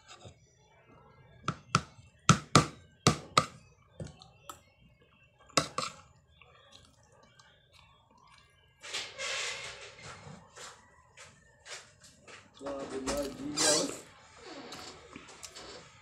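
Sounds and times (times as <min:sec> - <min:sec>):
metal spoon scraping a plate: 0:05.6 - 0:06.0.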